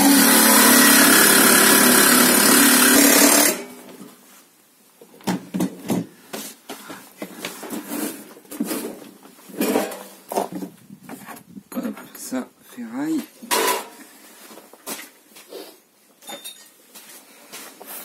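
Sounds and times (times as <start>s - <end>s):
jigsaw cutting metal: 0.0s - 3.8s.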